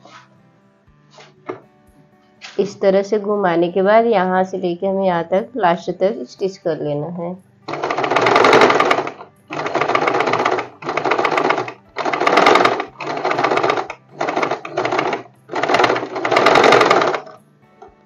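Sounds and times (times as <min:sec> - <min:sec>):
electric sewing machine stitching: 0:07.7 - 0:17.4.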